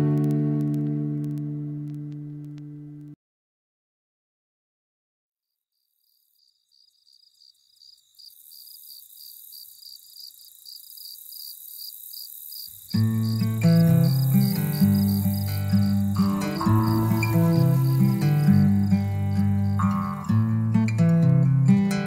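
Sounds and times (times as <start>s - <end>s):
acoustic guitar strumming: 0.0s - 3.1s, 12.9s - 22.0s
cricket-like chirping: 5.7s - 20.4s
faint hiss: 6.5s - 20.3s.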